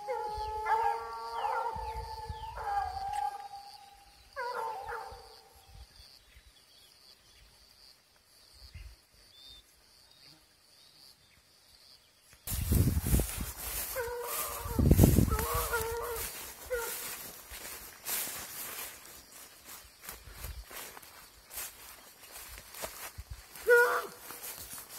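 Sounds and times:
hound baying: 0.0 - 3.7, 4.4 - 5.3, 13.9 - 17.2, 23.6 - 24.2
rustling rush of brush: 12.5 - 23.6.

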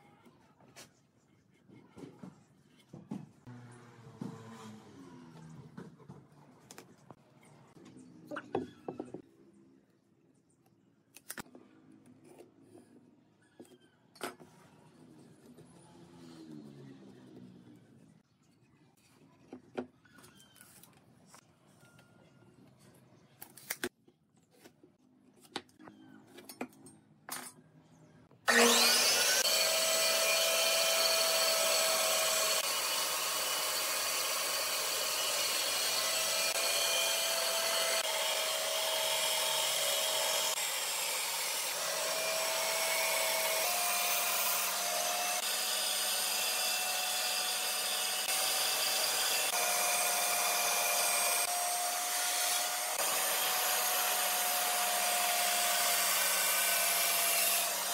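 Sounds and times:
band saw cutting wood: 28.5 - 57.9.

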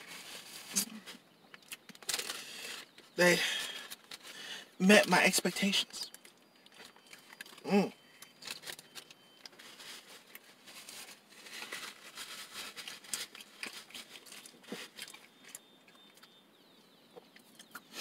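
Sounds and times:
paper wrapper crinkling: 0.0 - 4.6, 5.6 - 7.6, 8.2 - 16.1
chewing sandwich: 6.2 - 10.5, 11.4 - 16.4, 17.1 - 18.0.

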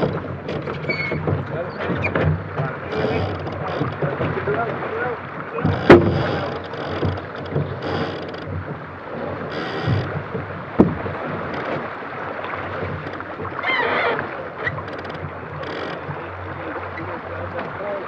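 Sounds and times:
deck gear knock: 0.0 - 4.7, 5.6 - 8.8, 9.5 - 11.8
wind buffeting microphone: 0.0 - 17.8
water rushing along hull: 0.0 - 18.0.

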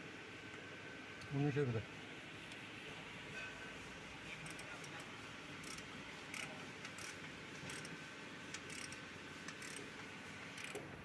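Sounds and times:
steady workshop hum: 0.0 - 11.0
ratchet wrench clicking: 5.6 - 7.9, 8.5 - 9.9, 10.6 - 10.8.

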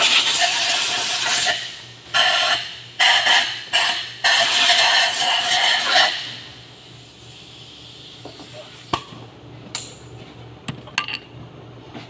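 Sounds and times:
compressed air blow gun bursts: 0.0 - 6.4.

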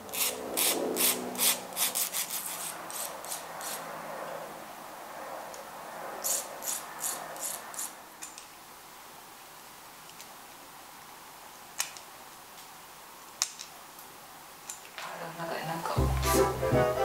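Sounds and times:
rubbing and rasping: 0.1 - 3.9, 6.2 - 8.0.

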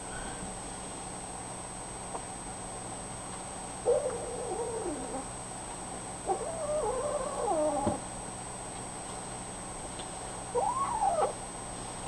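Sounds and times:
kittens meowing: 10.6 - 11.4.

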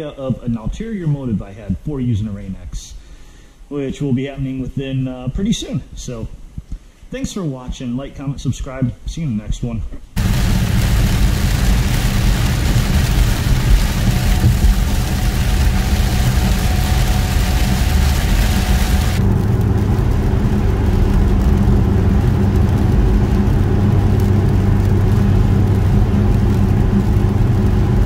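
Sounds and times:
car engine drone: 10.2 - 28.0
rain and road noise hiss: 10.2 - 28.0.

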